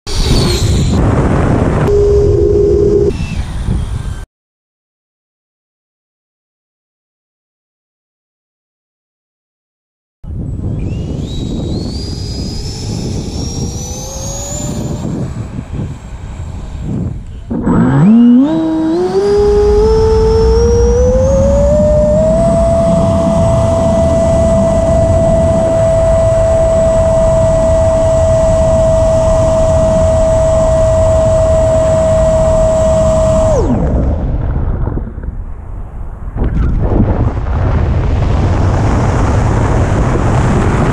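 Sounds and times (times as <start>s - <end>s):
electric ducted fan whine: 10.3s - 34.2s.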